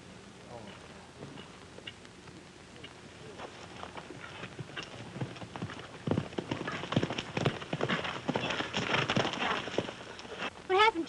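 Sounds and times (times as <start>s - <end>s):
horse hoofbeats on dirt: 3.3s - 10.5s.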